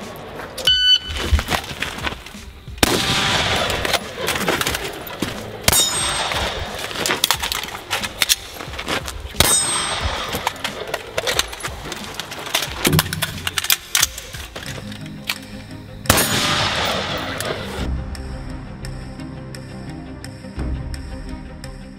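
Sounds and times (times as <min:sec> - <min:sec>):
pistol shots: 0:02.8 - 0:14.7, 0:16.1 - 0:17.9
metallic ringing: 0:09.4 - 0:14.5.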